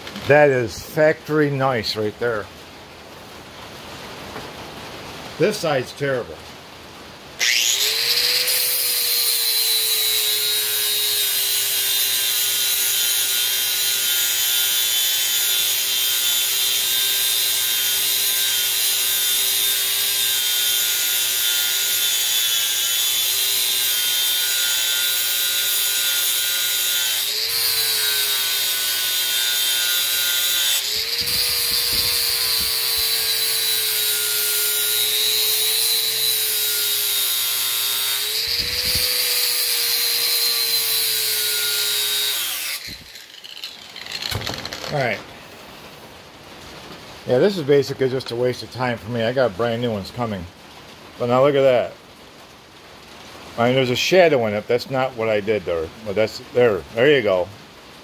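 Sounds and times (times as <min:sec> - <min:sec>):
angle grinder grinding metal: 0:07.4 - 0:45.3.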